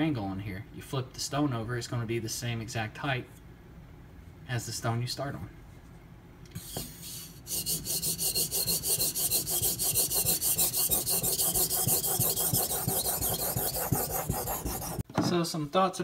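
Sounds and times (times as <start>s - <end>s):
knife rasping on whetstone: 6.7s - 15.0s.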